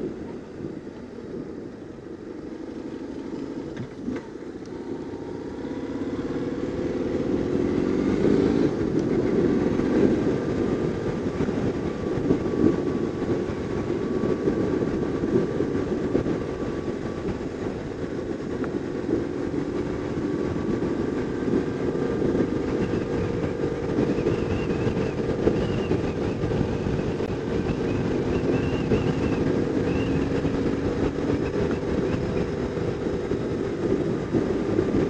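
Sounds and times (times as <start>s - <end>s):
motorcycle engine accelerating: 0.0s - 35.0s.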